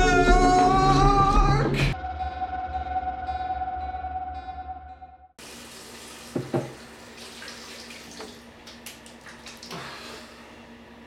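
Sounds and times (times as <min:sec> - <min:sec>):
tap running into sink: 0:06.0 - 0:09.1.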